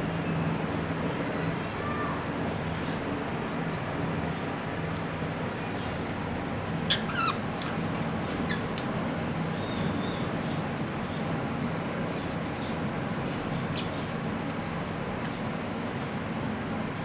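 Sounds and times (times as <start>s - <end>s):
background hiss and hum: 0.0s - 17.0s
budgerigars chirping: 6.8s - 8.6s.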